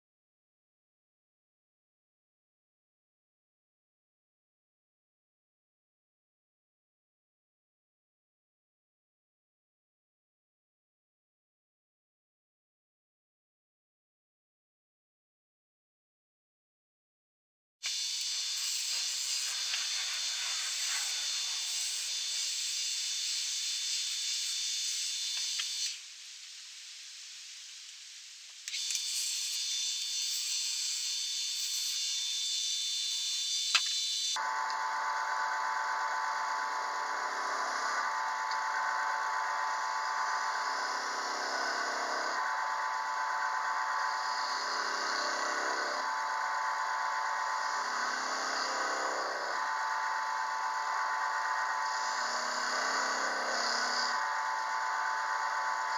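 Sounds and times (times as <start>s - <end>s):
wood lathe motor whine: 17.8s - 26.0s, 28.8s - 55.9s
chisel cutting spinning wood: 17.9s - 26.0s, 28.7s - 55.9s
sharp click: 28.7s - 29.2s, 33.7s - 34.0s.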